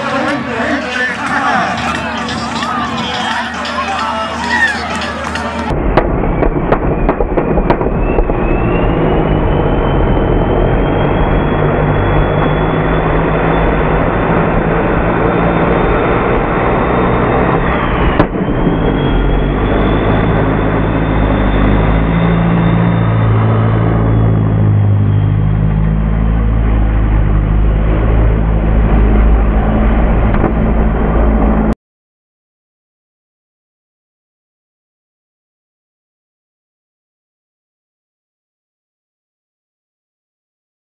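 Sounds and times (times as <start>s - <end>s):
car engine running loudly: 0.0s - 31.8s
high turbo whine: 0.0s - 31.8s.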